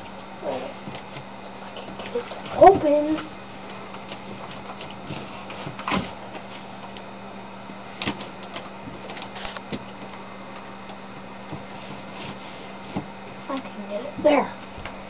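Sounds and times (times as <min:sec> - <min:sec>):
steady low hum: 0:00.0 - 0:15.0
cardboard knocks and scrapes: 0:04.0 - 0:06.7, 0:11.5 - 0:13.2.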